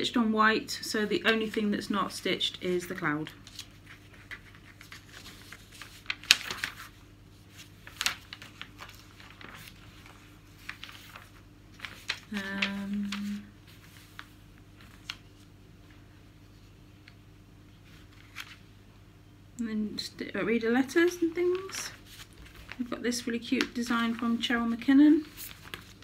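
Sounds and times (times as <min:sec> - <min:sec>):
magazine pages rustling: 0:02.8 - 0:17.2, 0:17.8 - 0:18.7, 0:20.8 - 0:26.0
person humming: 0:12.3 - 0:13.6.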